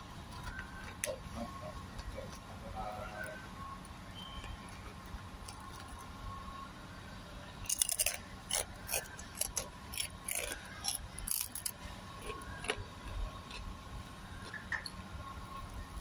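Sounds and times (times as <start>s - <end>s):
crackers crunching: 0.2s - 2.4s, 7.6s - 13.8s.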